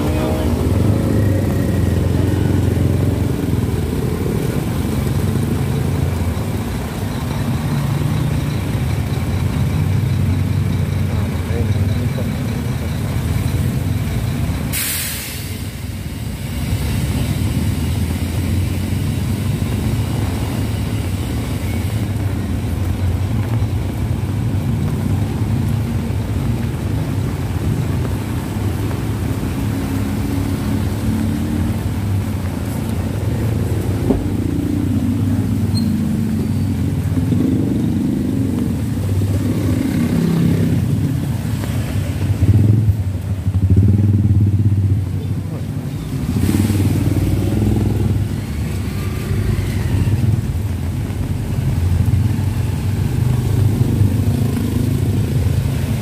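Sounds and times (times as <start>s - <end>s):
motorcycles passing: 0.0s - 14.7s, 16.6s - 56.0s
tyres hissing on wet road: 0.0s - 56.0s
vehicle engines idling: 0.0s - 56.0s
brief sharp hiss: 14.7s - 15.8s.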